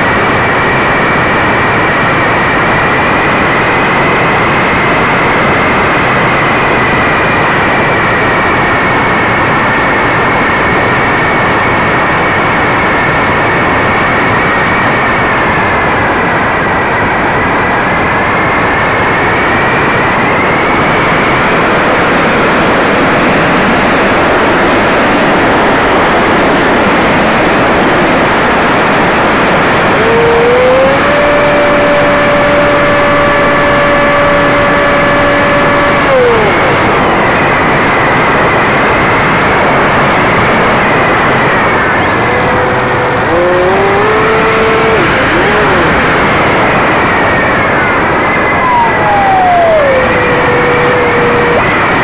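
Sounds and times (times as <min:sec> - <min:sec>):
propeller noise: 0:20.7 - 0:52.0
motor whining: 0:29.9 - 0:36.8, 0:41.8 - 0:46.2, 0:48.6 - 0:51.7.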